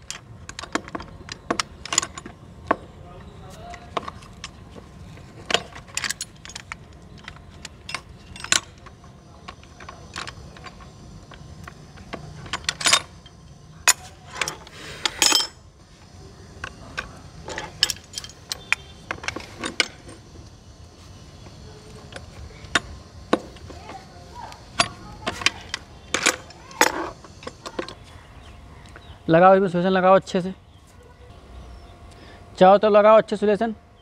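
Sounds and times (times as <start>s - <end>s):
pipe wrenches clinking on metal: 0.0s - 15.7s, 16.6s - 20.3s, 22.0s - 28.0s.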